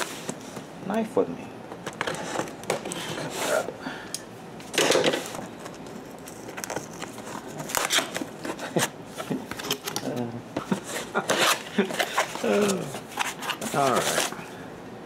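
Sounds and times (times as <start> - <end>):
air conditioner running: 0.0 - 15.0
cardboard scraping and tearing: 10.8 - 14.4.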